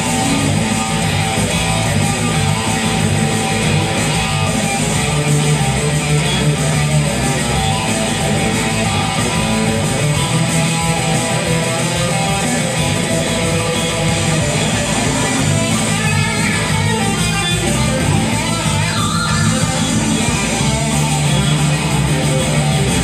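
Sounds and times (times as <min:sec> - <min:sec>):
electric guitar surf rock: 0:00.0 - 0:23.0.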